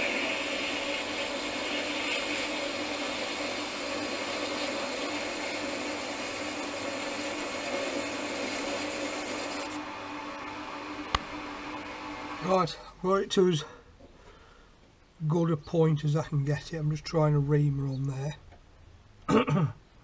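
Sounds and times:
metal lathe running: 0.0 - 12.5.

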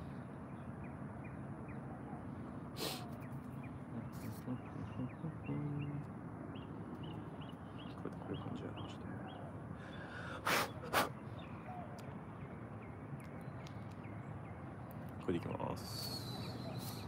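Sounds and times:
bird chirps: 0.0 - 17.0
breathy puffs: 9.8 - 11.2.

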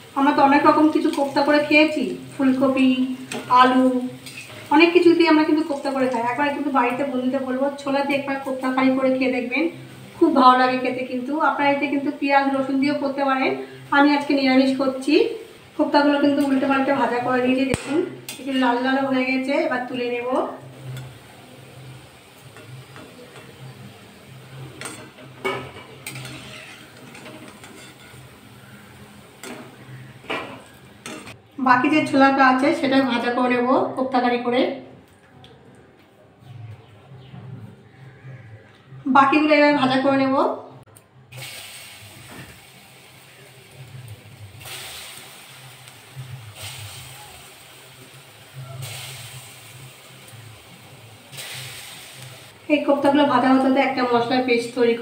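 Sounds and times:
food sizzling in hot oil: 0.0 - 32.2, 41.3 - 55.0
metal spatula scraping pan: 24.6 - 31.4.

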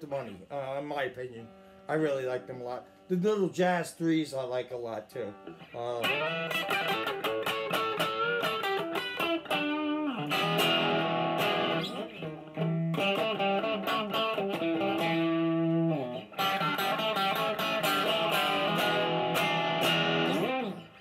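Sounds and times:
electric guitar lead playing: 5.1 - 21.0.

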